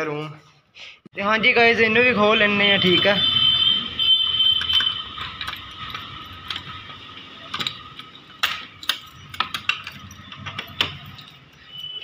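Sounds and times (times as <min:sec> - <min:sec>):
key turning in padlock: 0:04.2 - 0:12.0
metal lock clicks and rattles: 0:04.6 - 0:11.7.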